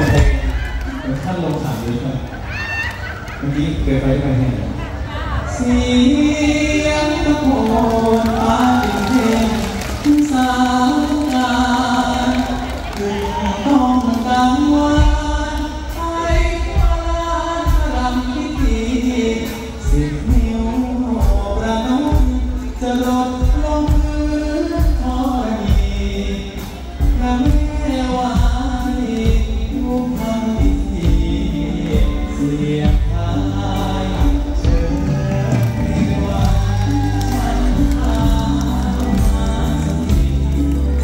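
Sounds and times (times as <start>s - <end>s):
steady drum beat: 0.0s - 1.8s, 13.8s - 41.0s
man singing into microphone: 0.0s - 2.2s, 5.4s - 41.0s
live band accompaniment: 0.0s - 41.0s.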